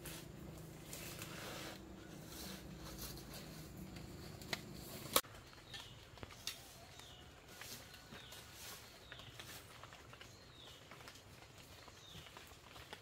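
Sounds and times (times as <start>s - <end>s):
footsteps in leaf litter: 0.0s - 13.0s.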